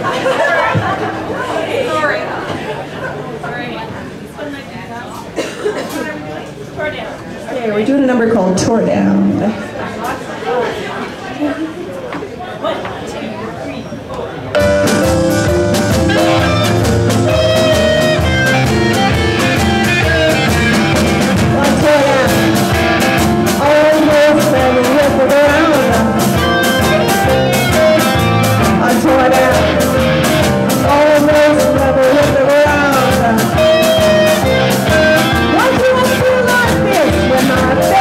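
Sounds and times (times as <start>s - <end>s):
live blues band: 14.6s - 38.0s
woman singing: 21.4s - 22.6s, 23.6s - 26.4s, 28.8s - 29.8s, 30.8s - 34.1s, 34.8s - 38.0s.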